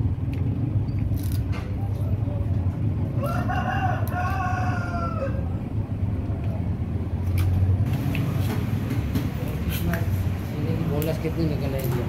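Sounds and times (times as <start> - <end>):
steady low hum: 0.0 - 11.8
rooster crowing: 3.2 - 5.6.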